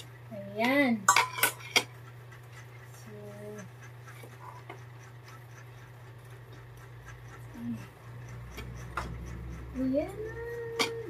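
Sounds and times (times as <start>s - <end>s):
steady low hum: 0.0s - 11.0s
spoon clinking against pot and plate: 1.0s - 1.9s, 10.6s - 11.0s.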